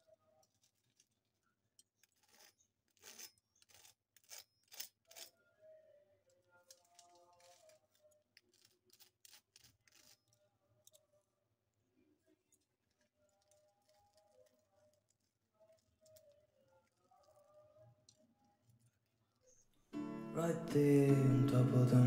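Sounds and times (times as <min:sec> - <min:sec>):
faint music: 0:05.1 - 0:08.6, 0:10.3 - 0:22.0.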